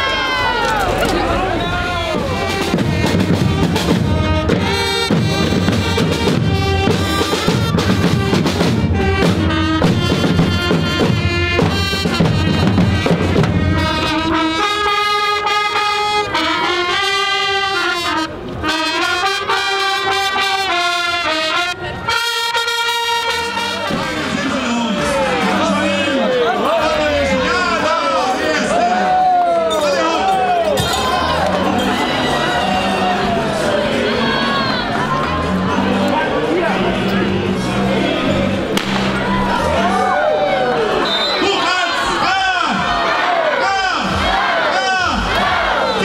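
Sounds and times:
drums: 0.0 - 14.9, 34.6 - 41.4
brass melody: 1.2 - 28.9, 30.8 - 46.0.

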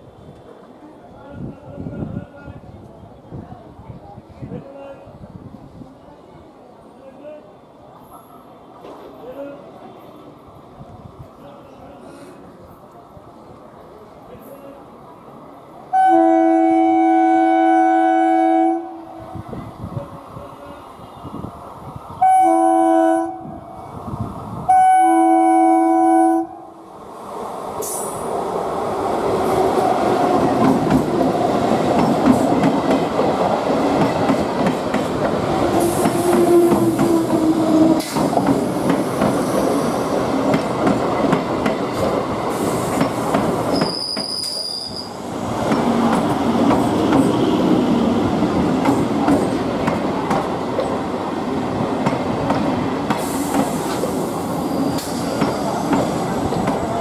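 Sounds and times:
train horn: 15.9 - 19.2, 22.2 - 23.6, 24.7 - 26.7
train wheels clattering on rails: 29.4 - 44.6, 45.6 - 51.0, 51.8 - 57.0.

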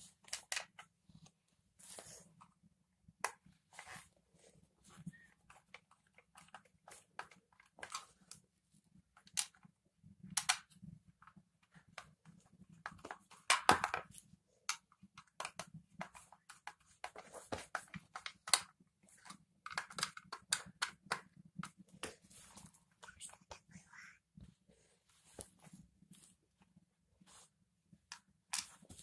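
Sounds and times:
plastic parts clicking and scraping: 0.0 - 2.6, 4.9 - 8.4, 9.1 - 23.5.

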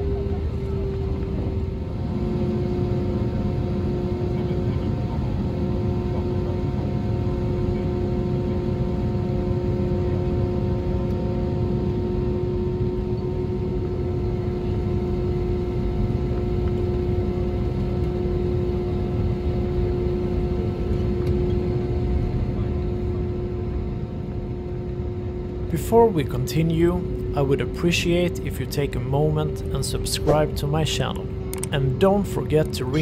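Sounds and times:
airliner cabin rumble: 0.0 - 33.0
constant hum: 0.0 - 33.0.

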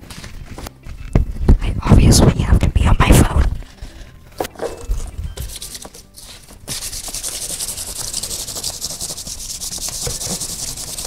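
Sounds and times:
sandpaper rubbing on plastic: 5.4 - 11.0.

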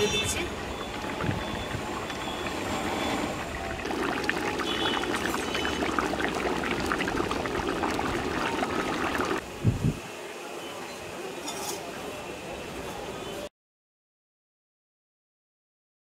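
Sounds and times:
curry bubbling with small pops: 0.5 - 9.4.

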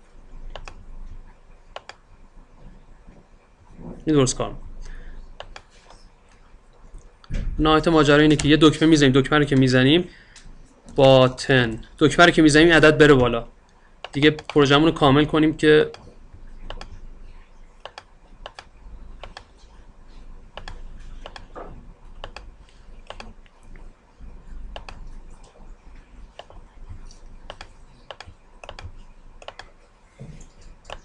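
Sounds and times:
low steady hum: 0.0 - 31.0
mouse and key clicks: 5.4 - 5.7, 14.0 - 14.6, 16.6 - 16.9, 17.8 - 19.5, 20.6 - 21.6, 22.2 - 23.5, 27.2 - 29.8.

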